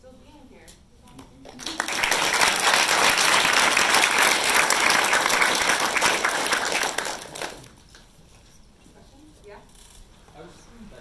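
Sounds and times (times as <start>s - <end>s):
audience applauding: 1.5s - 7.8s.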